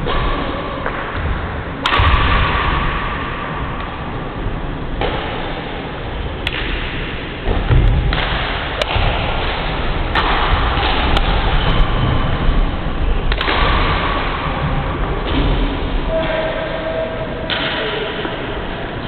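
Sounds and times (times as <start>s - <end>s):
steady background noise: 0.0s - 19.0s
racket striking shuttlecock: 13.3s - 14.1s.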